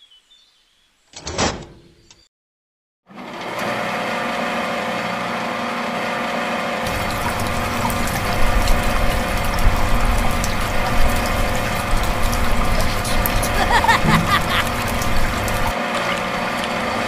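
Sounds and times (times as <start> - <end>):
water splashing from pump: 3.5 - 17.0.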